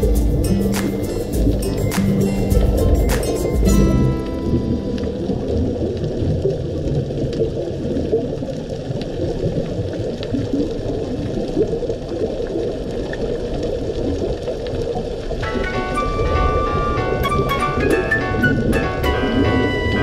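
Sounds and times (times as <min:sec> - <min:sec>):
muffled underwater rumbling wash: 0:01.3 - 0:20.0.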